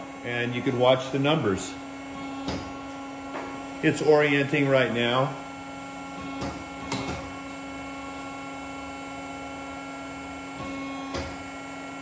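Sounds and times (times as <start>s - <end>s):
machine hum: 0.0s - 12.0s.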